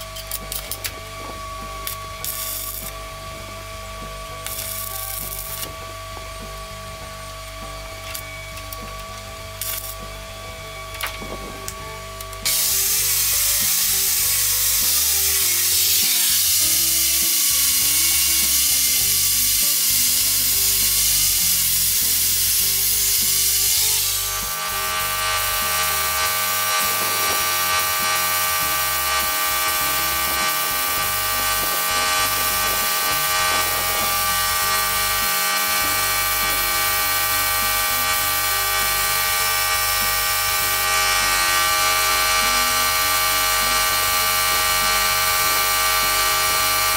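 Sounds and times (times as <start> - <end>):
spray gun spraying paint: 0.0 - 3.1, 3.9 - 5.7, 12.4 - 46.9
compressed air hissing: 11.2 - 46.9.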